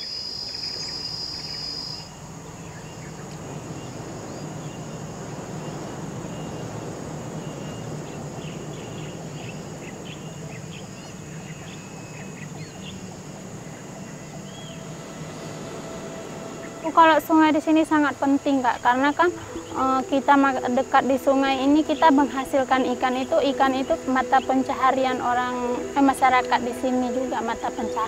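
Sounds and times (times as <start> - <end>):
bird chirps: 0.0 - 17.0
background hiss: 0.0 - 28.0
high insect drone: 0.0 - 28.0
loud high insect buzz: 0.0 - 28.0.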